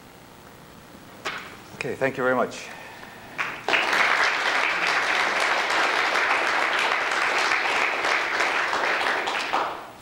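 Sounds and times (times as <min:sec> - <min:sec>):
audience applauding: 0:03.3 - 0:10.0.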